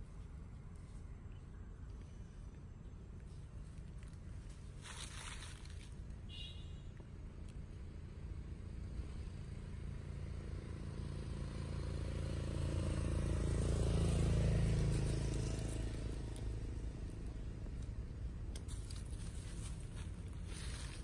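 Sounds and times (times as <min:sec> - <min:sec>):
vehicle passing: 0:07.8 - 0:21.0.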